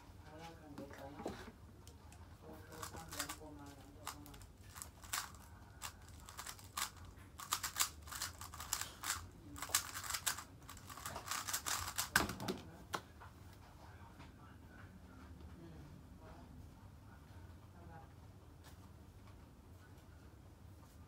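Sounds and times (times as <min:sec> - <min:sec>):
speed cube plastic clicking: 0:02.8 - 0:12.3.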